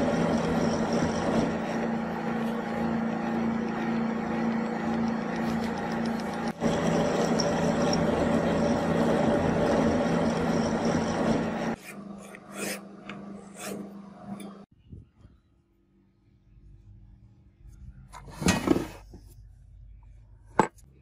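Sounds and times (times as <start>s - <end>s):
lathe motor hum: 0.0s - 14.6s.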